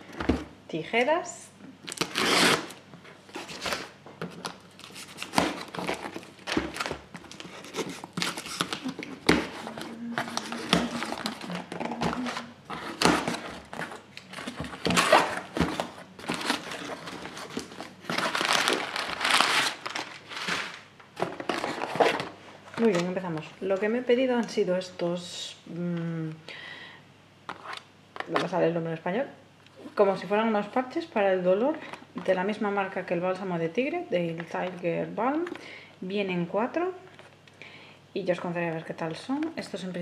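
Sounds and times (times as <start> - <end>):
cardboard and paper rustling: 2.0 - 23.4.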